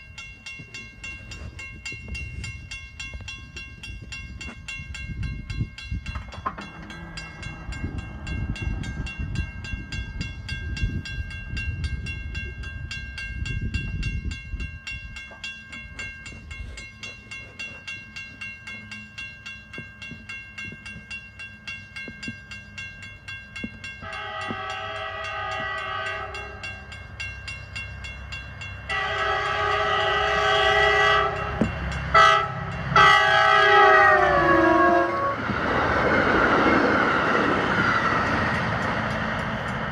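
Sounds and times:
crossing warning bell ringing: 0.0s - 39.9s
locomotive air horn blasts: 24.0s - 26.7s, 28.9s - 35.5s.

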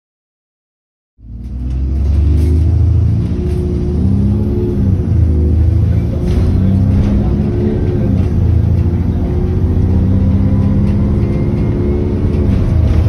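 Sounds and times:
bus diesel engine accelerating: 1.2s - 13.0s.

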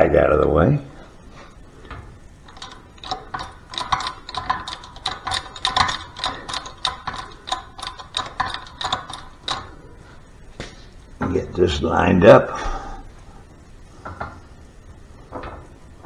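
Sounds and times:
shop press clicking: 2.5s - 9.8s.

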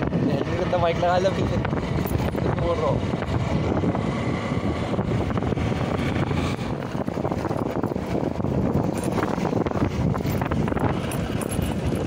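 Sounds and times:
motorcycle engine running: 0.0s - 12.0s
road noise: 0.0s - 12.0s.

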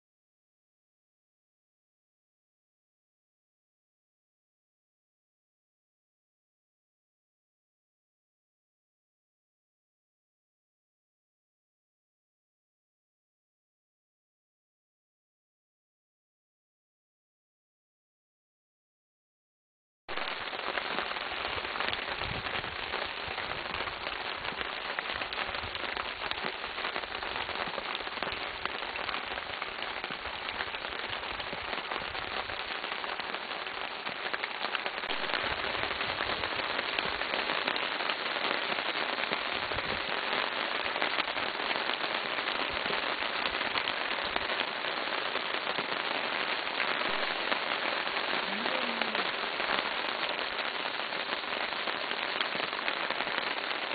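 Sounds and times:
heavy rain falling: 20.1s - 53.9s.

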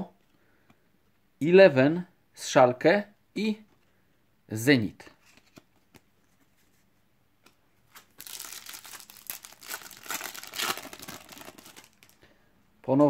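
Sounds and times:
foil pack tearing and crinkling: 8.0s - 12.2s.

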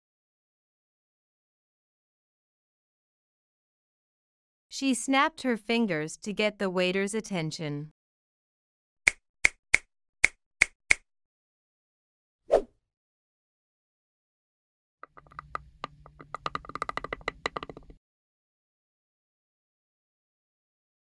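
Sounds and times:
teeth grinding: 15.0s - 18.0s.

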